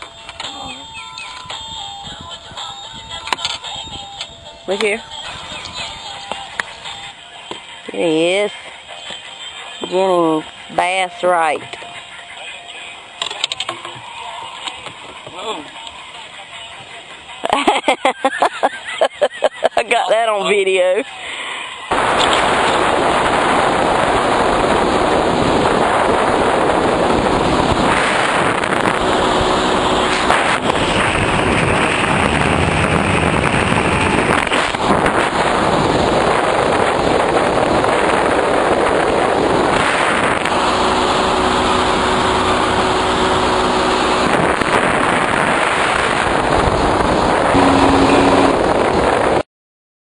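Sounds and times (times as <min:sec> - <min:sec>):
wind buffeting microphone: 0:00.0 - 0:07.2, 0:21.9 - 0:49.4
motor running: 0:22.0 - 0:36.2, 0:39.9 - 0:49.2.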